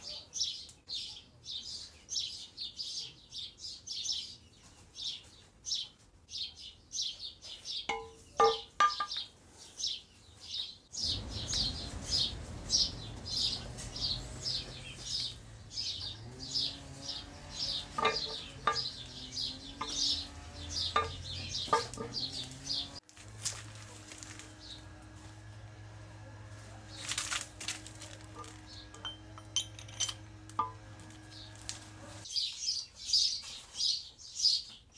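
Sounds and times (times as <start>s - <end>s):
small bird chirping: 0.0s - 23.0s
metal parts clicking on table: 28.9s - 30.7s.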